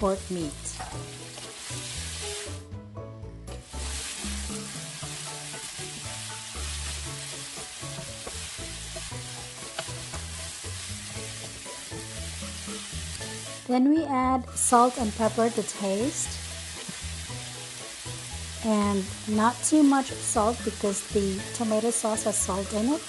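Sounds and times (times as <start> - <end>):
meat sizzling in hot oil: 0.0 - 2.7, 3.5 - 23.0.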